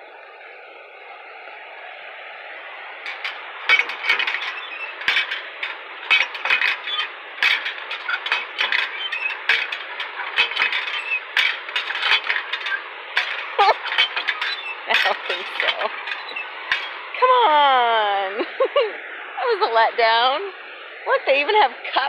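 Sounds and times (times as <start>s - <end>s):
hand pump metallic clanks: 3.1s - 17.2s.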